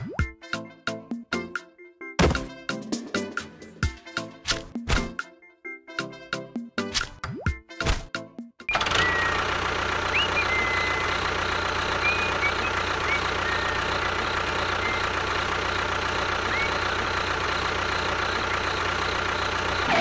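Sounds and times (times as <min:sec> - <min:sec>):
small engine running steadily: 0:08.7 - 0:20.0.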